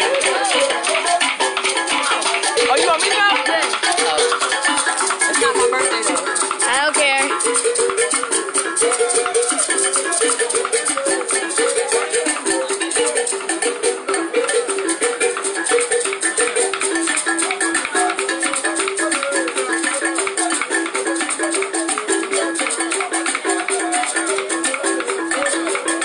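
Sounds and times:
upbeat dance music: 0:00.0 - 0:26.0.

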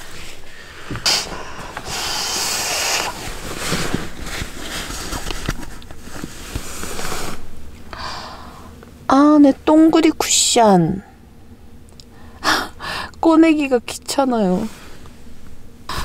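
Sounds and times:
fabric rustling and rubbing: 0:00.0 - 0:07.7.

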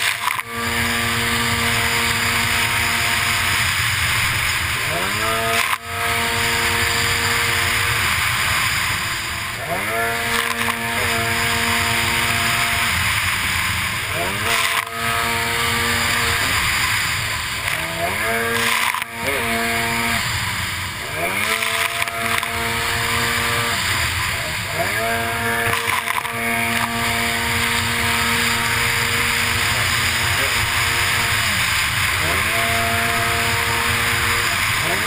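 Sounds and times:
jet ski engine revving: 0:00.0 - 0:35.0
hiss of spray and wind: 0:26.6 - 0:34.9.

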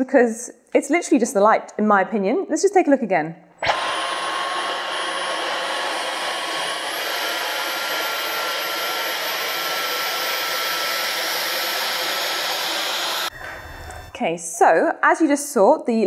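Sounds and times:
vacuum cleaner suction and whine: 0:03.6 - 0:14.2.

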